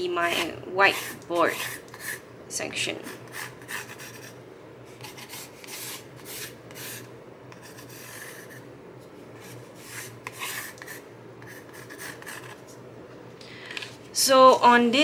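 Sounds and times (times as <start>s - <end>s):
pencil scratching on cardboard: 0.9s - 2.2s, 3.1s - 4.4s, 5.0s - 8.6s, 9.4s - 12.6s.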